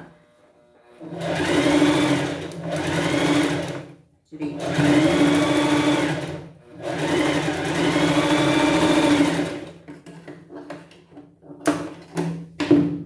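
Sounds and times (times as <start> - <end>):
sewing machine running: 1.0 - 3.9, 4.6 - 9.8.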